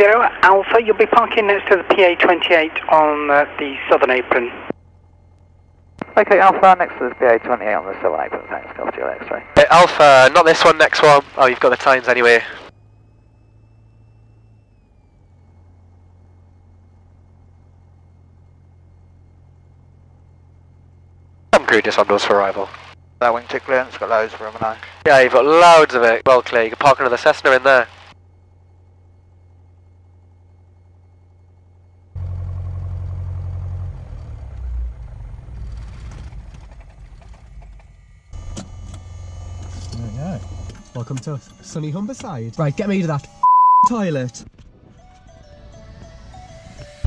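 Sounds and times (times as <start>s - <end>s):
thin high whine: 0.0s - 44.4s
aircraft engine low hum: 0.0s - 47.0s.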